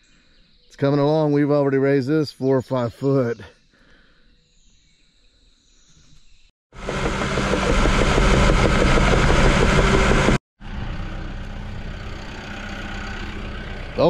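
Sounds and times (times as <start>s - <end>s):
bulldozer diesel engine running: 6.8s - 14.0s
engine idling: 6.8s - 14.0s.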